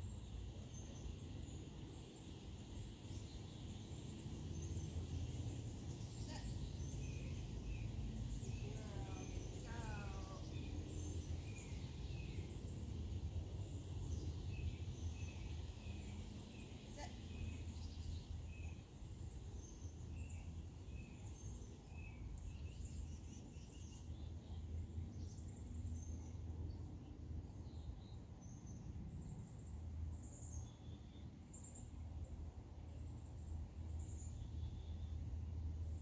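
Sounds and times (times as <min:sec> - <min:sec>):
low outdoor rumble: 0:00.0 - 0:36.0
birds chirping: 0:03.0 - 0:12.8.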